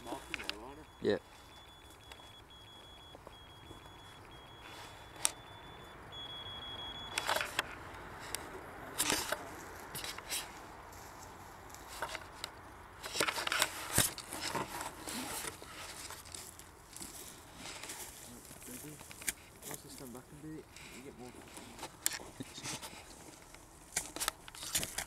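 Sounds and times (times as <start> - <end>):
high electronic tone: 0.0 - 7.6
footsteps through undergrowth: 8.2 - 12.4, 13.0 - 20.2.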